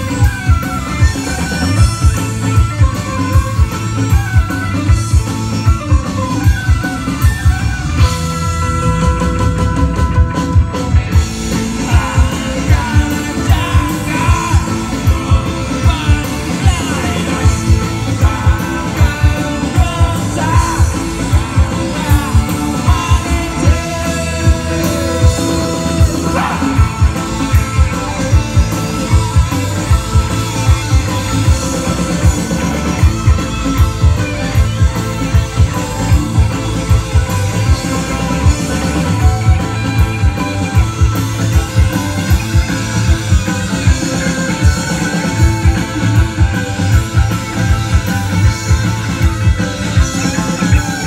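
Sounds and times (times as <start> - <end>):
drum kit beat: 0.0 - 51.0
electric guitars and bass: 0.0 - 51.0
person singing: 11.5 - 28.1.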